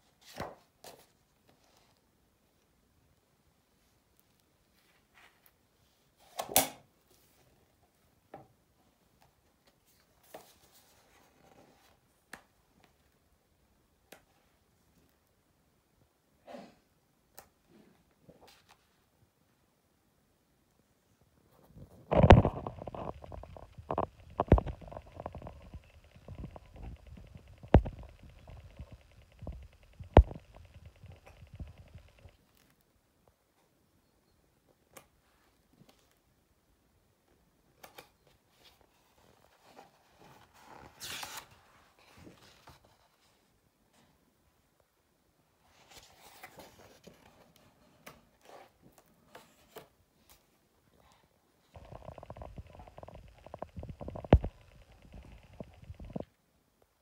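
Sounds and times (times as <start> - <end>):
book pages turning: 21.8 - 32.8, 37.8 - 43.3.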